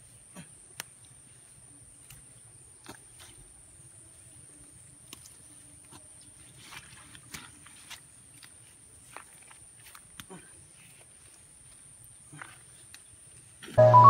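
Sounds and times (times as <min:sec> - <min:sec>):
plant stems snapping: 0:00.7 - 0:01.0.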